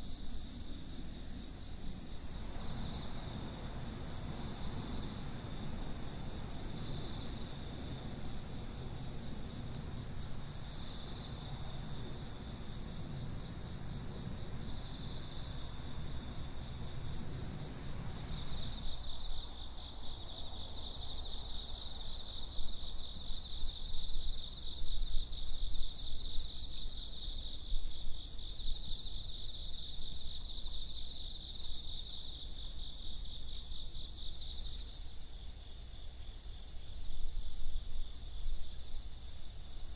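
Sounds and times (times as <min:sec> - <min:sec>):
crickets trilling: 0:00.0 - 0:39.9
low background rumble: 0:02.4 - 0:20.2.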